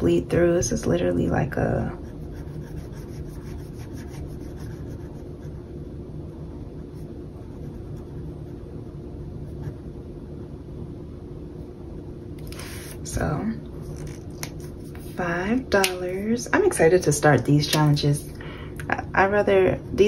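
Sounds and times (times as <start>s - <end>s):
low background hum: 0.0s - 20.0s
pencil scratching on paper: 1.8s - 5.7s, 6.8s - 8.8s.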